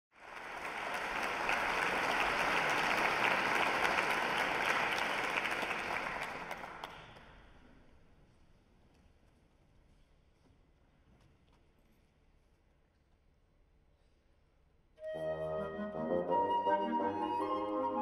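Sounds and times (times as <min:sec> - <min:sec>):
audience applauding: 0:00.1 - 0:07.4.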